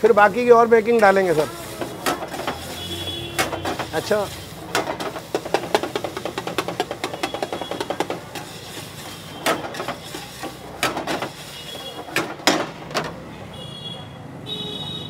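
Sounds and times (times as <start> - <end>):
onions frying: 0.0 - 12.8
metal spatula striking a wok: 0.9 - 12.7.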